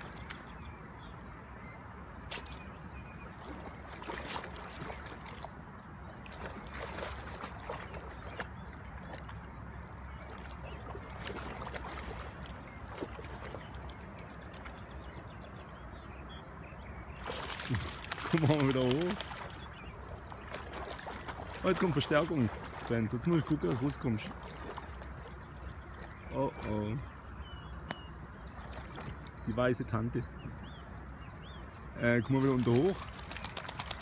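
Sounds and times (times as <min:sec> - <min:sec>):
dog splashing in water: 0:03.4 - 0:05.5, 0:06.2 - 0:09.3, 0:10.2 - 0:14.0, 0:17.2 - 0:25.3, 0:32.4 - 0:34.0.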